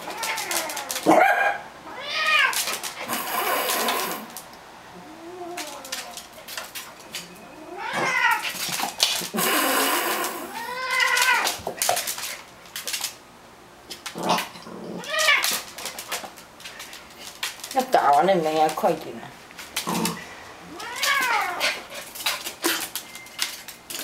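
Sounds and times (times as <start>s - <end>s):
cat yowling: 0.0s - 4.2s, 7.5s - 8.6s, 9.4s - 11.6s, 15.0s - 15.6s, 20.7s - 21.8s.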